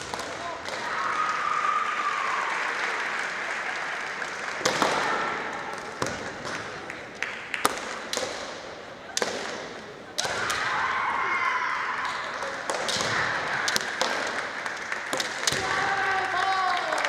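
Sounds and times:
fencers shouting: 0.0 - 2.6, 9.2 - 14.4, 15.2 - 17.0.

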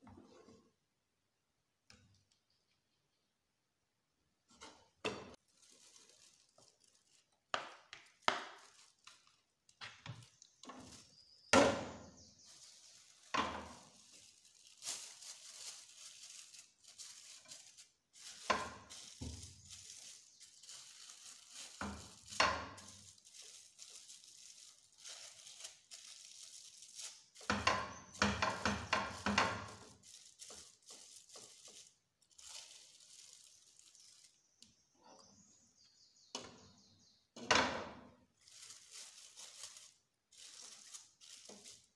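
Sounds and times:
plastic wrap crinkling: 5.3 - 11.5, 12.1 - 34.6, 38.3 - 41.9.

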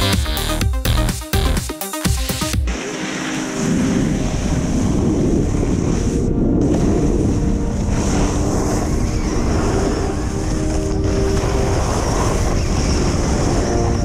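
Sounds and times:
board sliding on snow: 2.7 - 14.0
wind buffeting microphone: 3.9 - 14.0.

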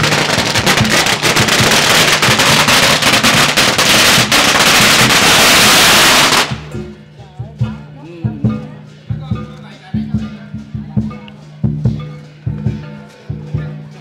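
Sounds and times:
firecrackers crackling: 0.0 - 6.9
music: 0.0 - 14.0.

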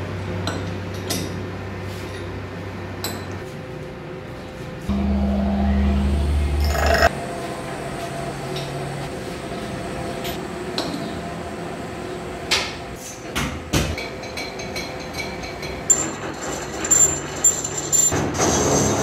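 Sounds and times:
workshop hum: 0.0 - 19.0.

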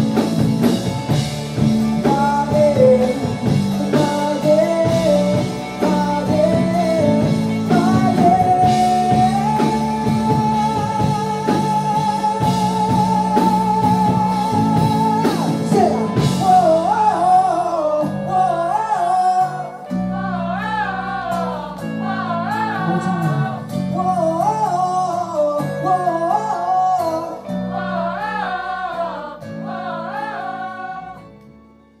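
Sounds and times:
drums and cymbals: 0.0 - 17.4
electric bass: 0.0 - 32.0
electric guitar: 0.0 - 32.0
person singing with vibrato: 1.8 - 31.4.

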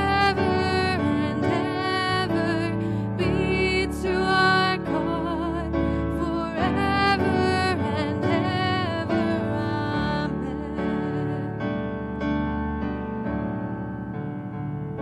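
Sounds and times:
woman singing worship song: 0.0 - 11.6
piano chords: 0.0 - 15.0.

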